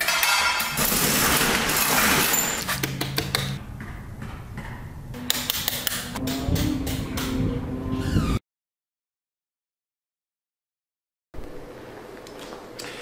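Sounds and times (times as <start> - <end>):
metal roll-up door rattling: 0.0 - 2.9.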